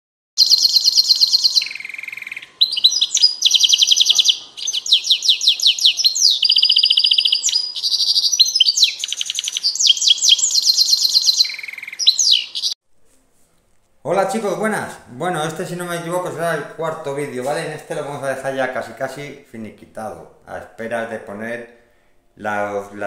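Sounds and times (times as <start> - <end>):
finch singing high trills: 0.4 - 12.8.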